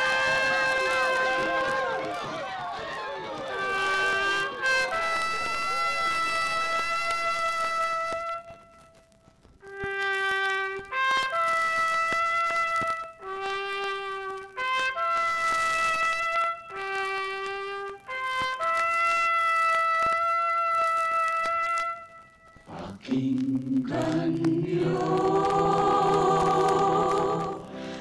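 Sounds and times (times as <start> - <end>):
trumpet playing slow melody: 0.0 - 2.2, 3.4 - 22.7.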